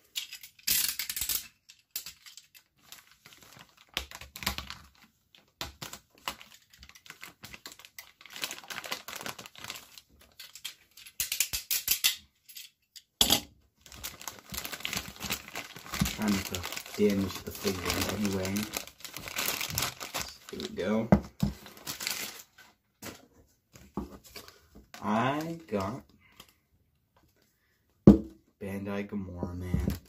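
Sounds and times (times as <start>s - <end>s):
plastic bag crinkling: 1.7s - 11.1s, 13.8s - 22.8s.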